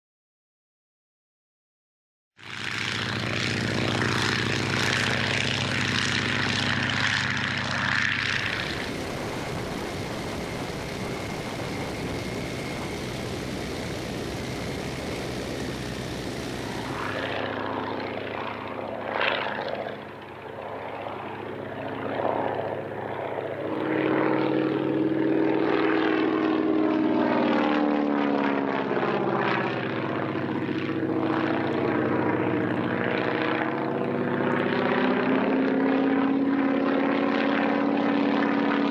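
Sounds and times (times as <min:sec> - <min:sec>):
propeller plane engine droning: 0:02.4 - 0:38.9.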